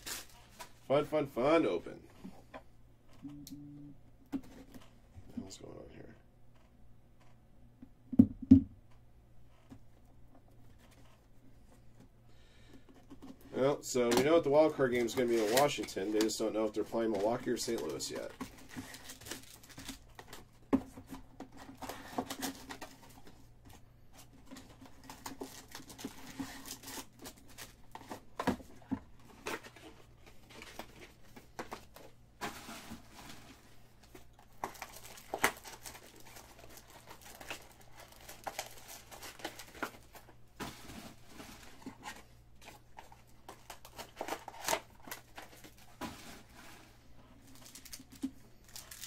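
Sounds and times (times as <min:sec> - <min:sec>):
foil wrappers crinkling: 0:00.0 - 0:00.8, 0:14.2 - 0:20.5, 0:24.3 - 0:28.2, 0:29.3 - 0:49.0.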